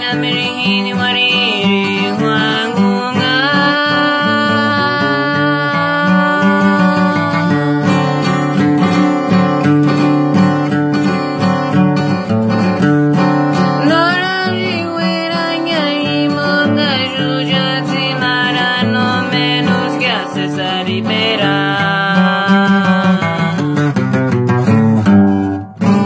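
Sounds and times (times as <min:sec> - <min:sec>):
acoustic guitar strumming chords: 0:00.0 - 0:26.0.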